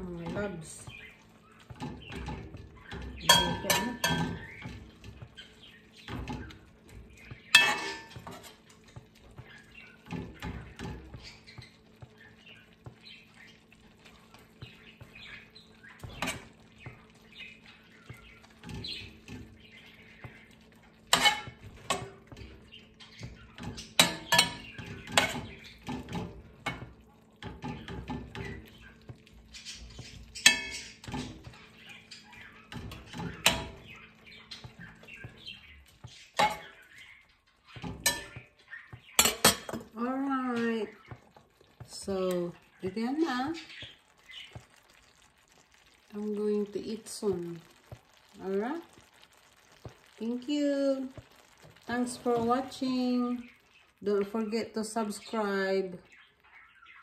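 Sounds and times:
metal spoon scraping skillet: 7.2 - 8.7, 21.1 - 22.5, 23.2 - 28.6, 37.8 - 38.4.

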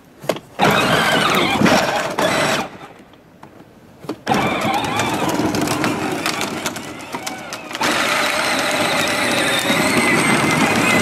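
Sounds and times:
electric toy motor whining: 4.3 - 11.0.

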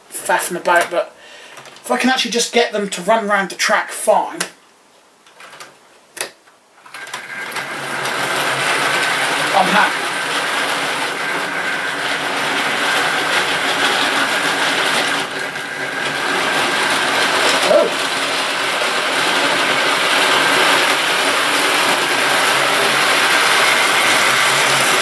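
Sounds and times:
model train motor whirring: 6.9 - 25.0.

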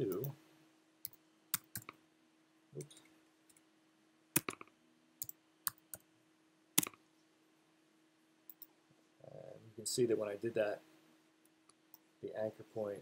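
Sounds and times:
faint steady hum: 0.0 - 13.0
mouse and keyboard clicks: 4.4 - 6.0.

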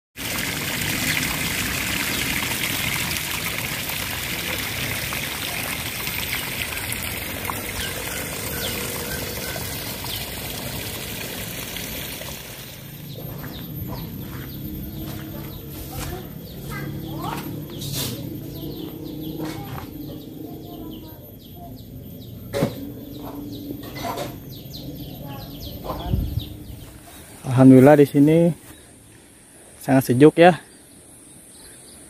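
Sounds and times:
water running and pouring: 0.2 - 13.4.

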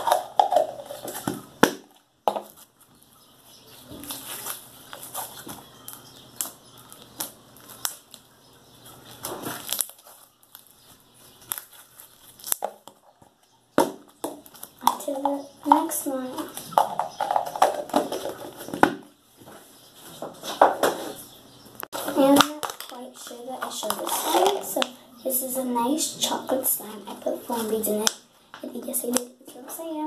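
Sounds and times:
slime crackling and popping: 4.0 - 8.3, 9.1 - 12.9, 22.2 - 24.9
plastic tub handling: 21.9 - 24.9.

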